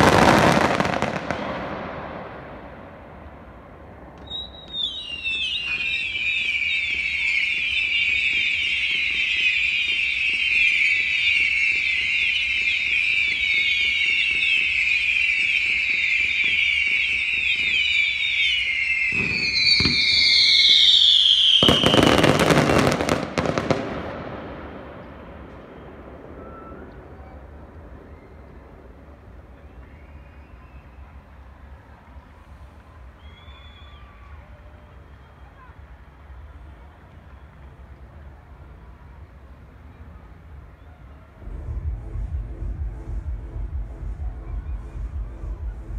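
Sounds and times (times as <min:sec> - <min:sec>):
fireworks whistling: 0:00.0 - 0:31.4, 0:32.6 - 0:35.6
fireworks bangs and crackles: 0:00.0 - 0:40.7.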